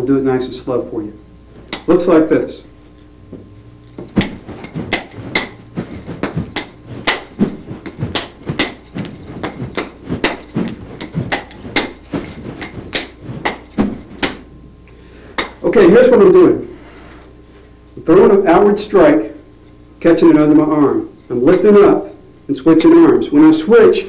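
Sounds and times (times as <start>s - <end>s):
nunchaku clacks and slaps: 1.7s - 1.9s, 4.0s - 14.5s, 15.4s - 15.6s.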